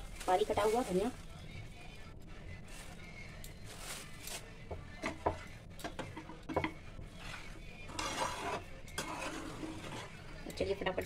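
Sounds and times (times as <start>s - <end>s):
spatula scraping pan: 6.0s - 10.8s.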